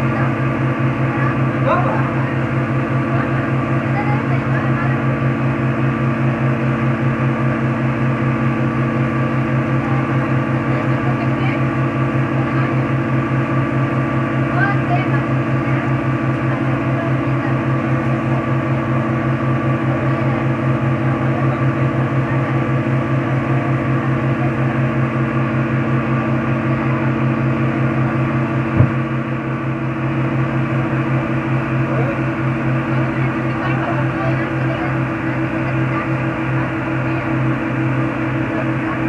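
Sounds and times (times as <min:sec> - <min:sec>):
motorboat engine droning: 0:00.0 - 0:39.0
thump: 0:28.8 - 0:29.0.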